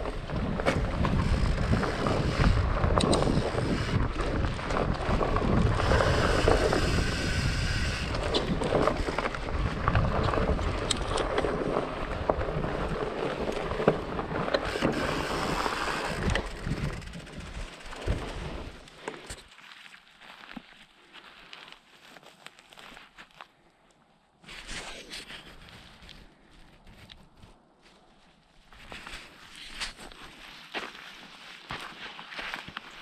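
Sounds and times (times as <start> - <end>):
wind on microphone: 0.0 - 18.8
bike knocking and rattling: 0.0 - 19.5
bike tyres rolling on dirt: 0.0 - 23.4, 24.6 - 33.0.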